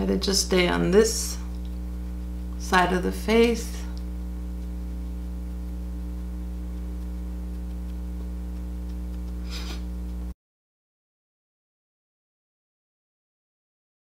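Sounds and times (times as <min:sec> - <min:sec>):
electrical mains hum: 0:00.0 - 0:10.4.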